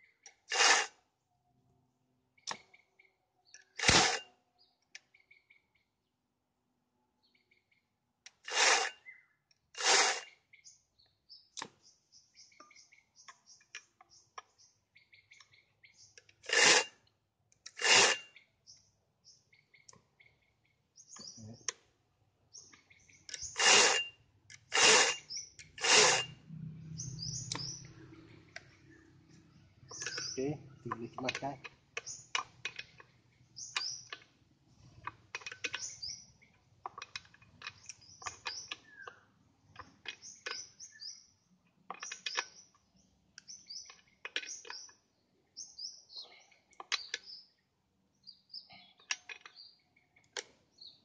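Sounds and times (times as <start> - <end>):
chainsaw starter rope pulls: 0.4 - 1.0, 3.6 - 4.3, 8.3 - 9.1, 9.7 - 10.4, 16.4 - 17.0, 17.6 - 18.3, 23.3 - 26.4
birds chirping faintly: 1.1 - 3.8, 4.4 - 51.0.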